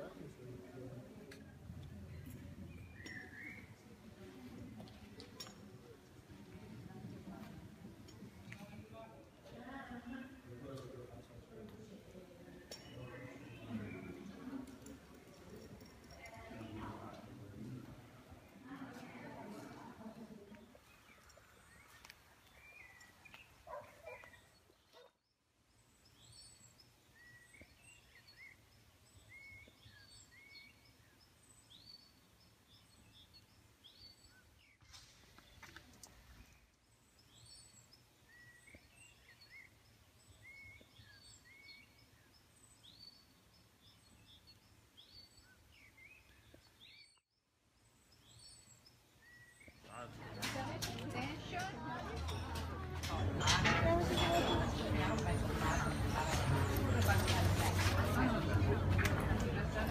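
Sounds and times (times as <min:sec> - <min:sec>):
birds chirping and whistling: 0:02.7 - 0:03.8.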